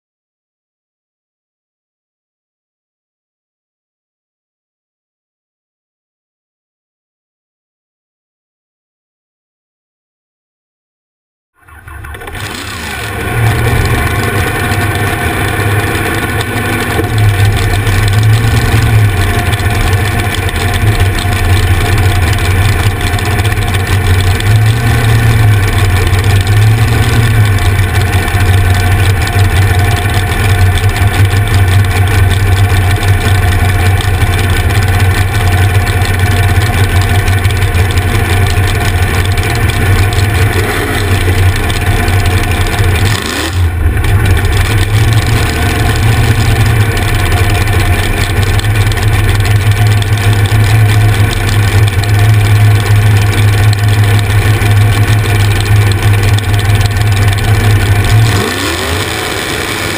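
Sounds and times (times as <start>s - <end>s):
loud engine idling: 11.6s - 59.9s.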